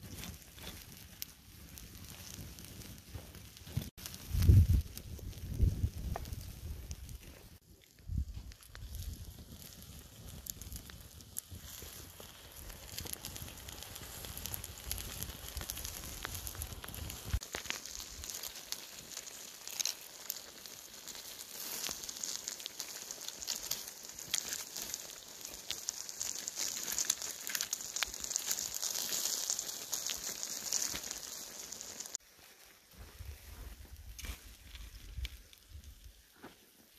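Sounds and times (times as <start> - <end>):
food sizzling: 0.0 - 32.8
wood fire crackling: 0.0 - 36.9.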